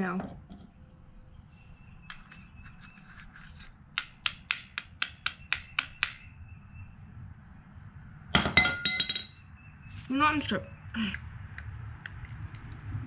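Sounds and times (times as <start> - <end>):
metallic clinks with ringing tone: 8.6 - 9.4.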